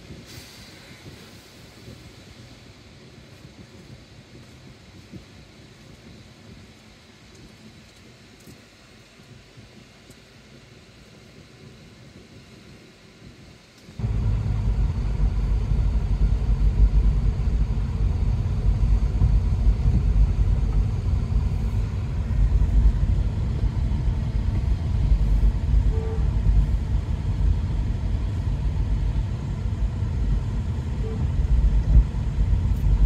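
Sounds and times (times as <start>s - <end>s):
car interior road rumble: 13.8s - 33.0s.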